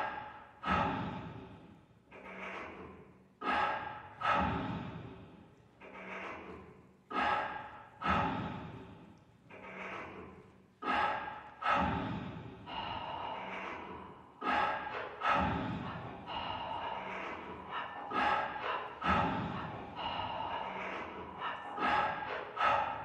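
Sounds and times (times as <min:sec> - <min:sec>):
amplified sharp breath gasps: 0:00.0 - 0:01.9, 0:03.4 - 0:05.6, 0:07.1 - 0:09.2, 0:10.8 - 0:23.0.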